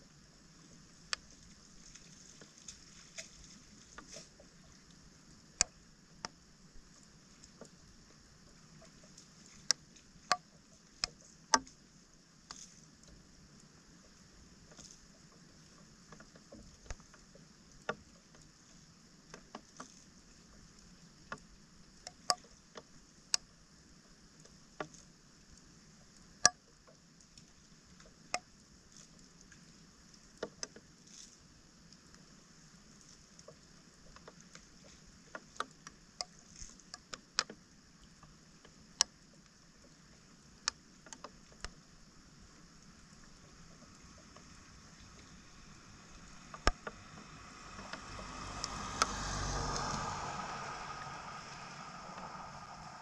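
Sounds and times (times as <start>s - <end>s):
faint steady hiss: 0.0s - 53.0s.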